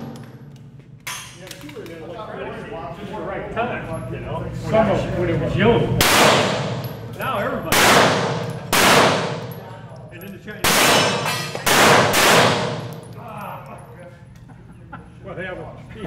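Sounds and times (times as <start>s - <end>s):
pistol shots echoing: 6.0s - 6.9s, 7.7s - 9.6s, 10.6s - 13.1s.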